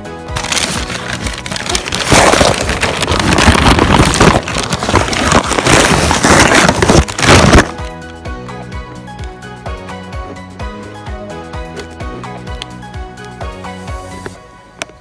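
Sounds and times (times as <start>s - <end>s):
packaging crinkling and rustling: 0.4s - 7.9s.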